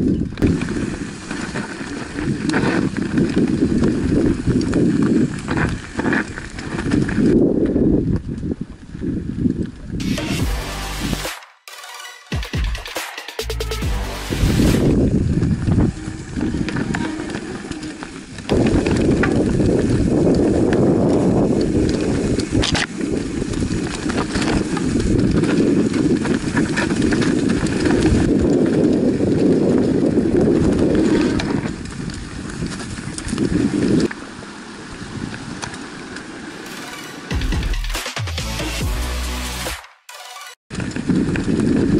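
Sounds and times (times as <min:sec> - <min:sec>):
mountain bike rumbling over stones: 0:00.0 - 0:10.0, 0:14.5 - 0:36.7, 0:40.7 - 0:41.9.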